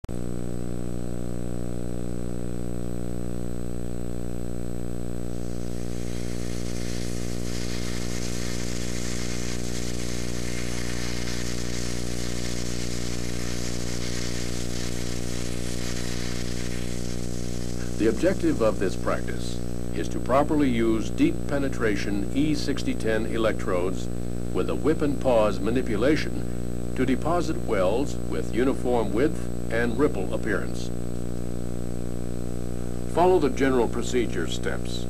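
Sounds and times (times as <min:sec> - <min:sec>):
loud buzzing hum: 0:00.0 - 0:35.0
hiss: 0:05.3 - 0:20.0.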